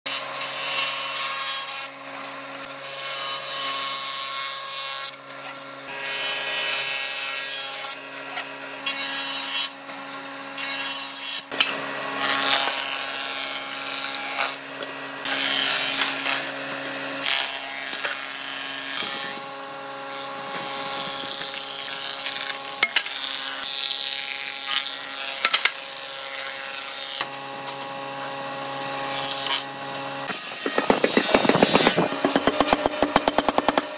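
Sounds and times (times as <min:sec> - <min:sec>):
cutter head shaving wood: 0:00.1 - 0:33.9
planer motor hum: 0:27.2 - 0:33.9.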